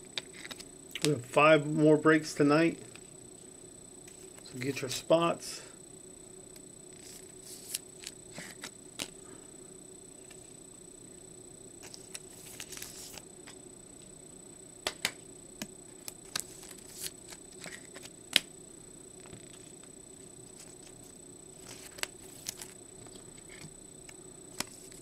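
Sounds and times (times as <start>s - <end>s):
cards rustling: 0.2s - 0.6s, 7.0s - 9.2s, 11.8s - 13.2s, 16.0s - 18.5s, 21.6s - 23.7s, 24.5s - 25.0s.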